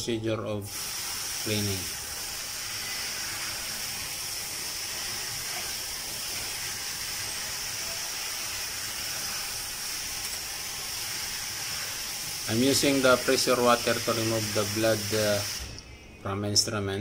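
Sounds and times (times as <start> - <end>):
water jet hissing on metal tray: 0.6 - 15.8.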